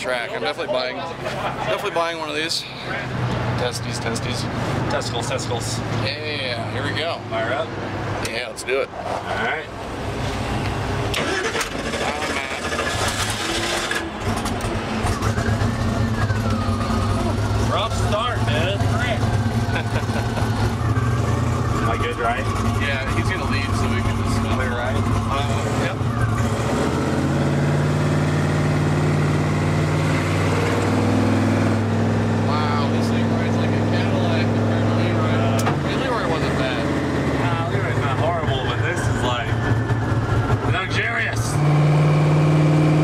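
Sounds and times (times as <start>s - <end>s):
race car engine starting roughly: 11.0s - 43.0s.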